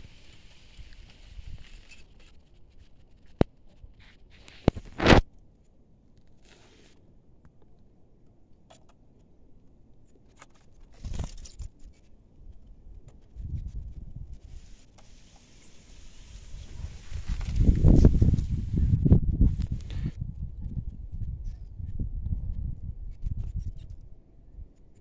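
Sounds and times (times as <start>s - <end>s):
scraping rustles at bird cage: 0.0s - 5.1s, 6.4s - 7.0s, 10.2s - 12.1s, 13.1s - 18.9s.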